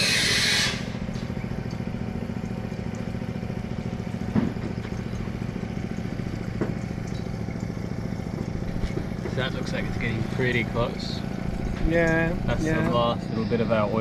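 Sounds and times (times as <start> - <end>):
engine humming steadily: 0.0 - 14.0.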